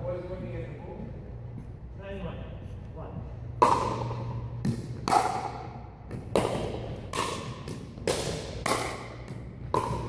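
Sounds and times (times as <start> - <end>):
ball bouncing on hardwood floor: 3.6 - 10.0
paddles striking plastic ball: 3.6 - 10.0.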